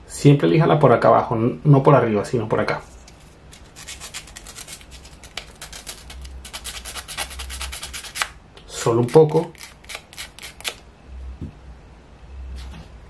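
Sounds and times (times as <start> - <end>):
sandpaper rubbing on wood: 3.8 - 8.3.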